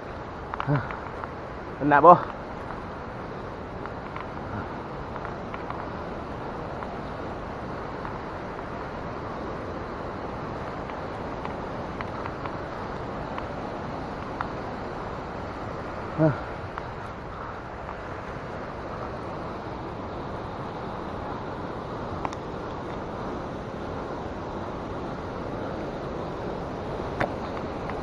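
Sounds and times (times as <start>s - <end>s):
steady rushing outdoor noise: 0.0s - 28.0s
faint clicks: 0.5s - 1.4s, 3.8s - 4.4s, 5.1s - 5.9s, 22.2s - 23.0s.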